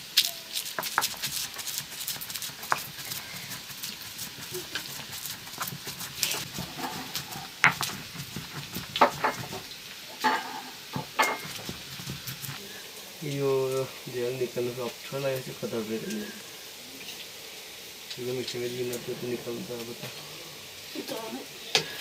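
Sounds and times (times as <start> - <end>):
stone pestle grinding in mortar: 0.5 - 9.7, 11.0 - 12.6.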